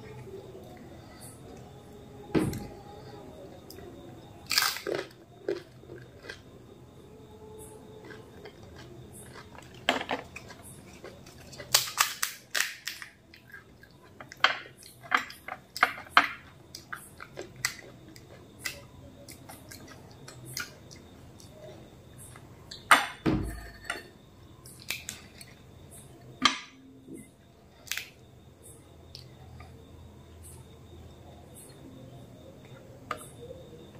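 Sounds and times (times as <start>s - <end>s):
crunchy chewing: 0.0s - 22.9s
thump: 2.3s - 2.7s, 23.2s - 23.7s
crisp shells cracking: 4.5s - 5.6s, 9.3s - 13.2s.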